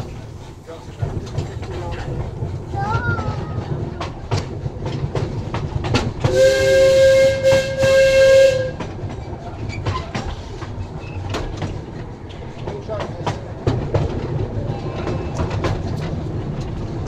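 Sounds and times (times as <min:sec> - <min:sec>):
train running rumble: 0:00.0 - 0:17.0
train wheels clicking over rail joints: 0:00.0 - 0:17.0
train whistle blast: 0:06.3 - 0:08.8.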